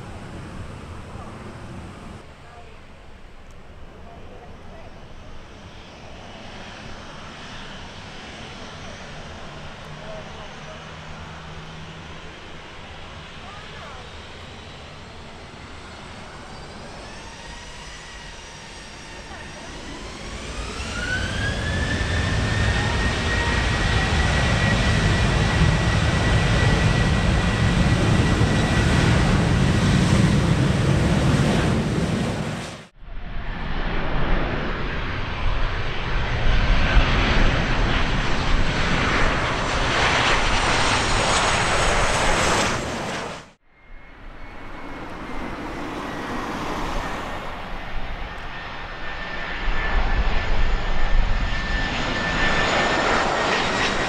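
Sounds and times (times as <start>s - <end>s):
jet approaching with steady whine: 0.0s - 54.0s
jet engines spooling up: 5.6s - 54.0s
jet passing with rushing noise: 14.2s - 54.0s.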